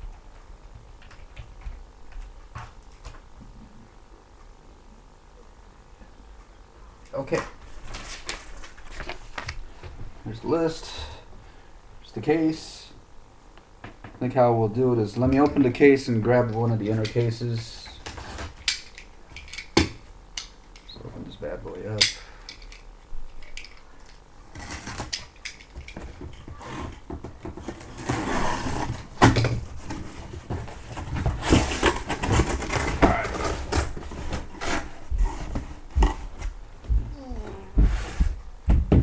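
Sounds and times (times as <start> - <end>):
cardboard flaps rustling: 26.0 - 39.0
box cutter scraping tape: 27.6 - 29.0.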